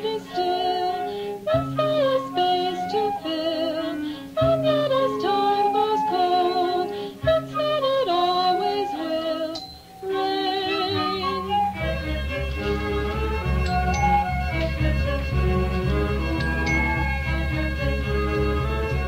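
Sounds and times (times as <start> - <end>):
lead melody line: 1.4 - 19.0
held low bass notes: 10.9 - 19.0.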